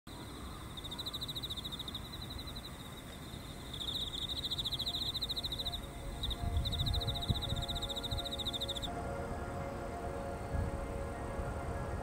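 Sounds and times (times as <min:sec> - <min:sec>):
insects trilling: 0:00.1 - 0:08.9
soft ambient music: 0:00.1 - 0:12.0.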